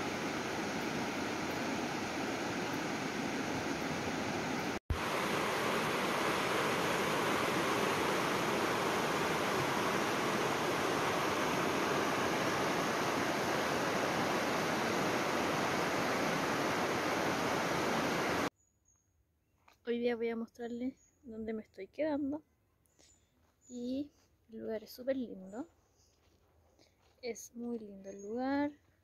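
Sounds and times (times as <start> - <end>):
river rapids rushing over stones: 0.0 - 18.5.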